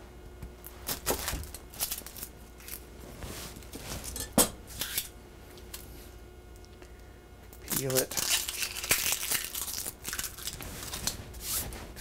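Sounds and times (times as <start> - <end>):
onion skin crackling and tearing: 0.8 - 2.8, 7.5 - 11.2.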